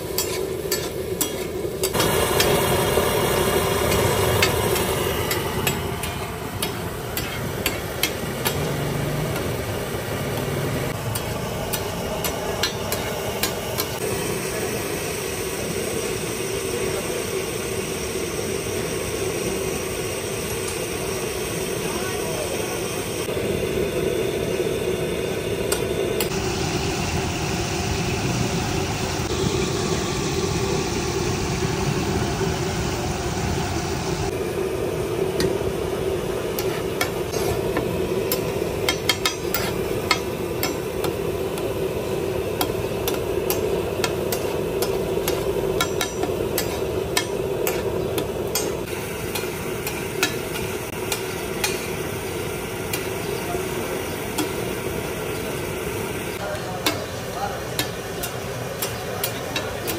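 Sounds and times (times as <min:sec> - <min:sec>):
steel spatula scraping griddle: 0:00.0 - 0:02.6, 0:03.9 - 0:09.6, 0:10.3 - 0:14.0, 0:36.5 - 0:52.0
food sizzling on a griddle: 0:00.0 - 0:22.8, 0:35.1 - 0:59.9
steady hum: 0:00.0 - 0:59.9.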